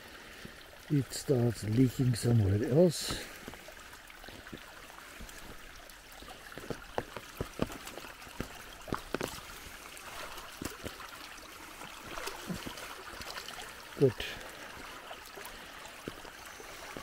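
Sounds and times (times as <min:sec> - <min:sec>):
water trickling down a channel: 0:00.0 - 0:17.0.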